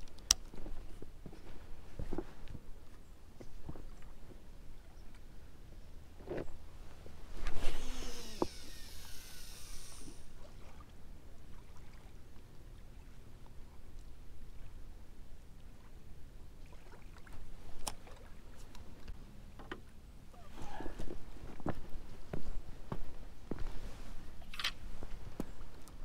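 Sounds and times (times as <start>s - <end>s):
fishing rod whoosh: 7.4s - 10.3s
reel spool whirring: 7.5s - 10.4s
fishing reel click: 7.8s - 10.2s.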